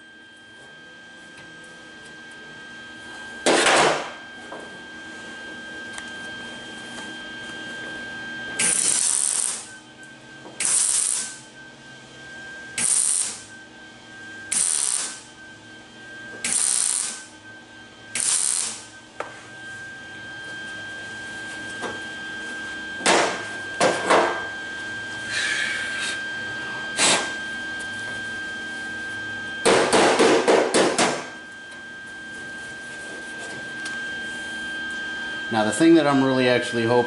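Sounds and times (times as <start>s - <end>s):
mig welder tack welding: 8.6s - 9.7s, 10.6s - 11.4s, 12.8s - 13.5s, 14.5s - 15.2s, 16.4s - 17.3s, 18.1s - 18.9s.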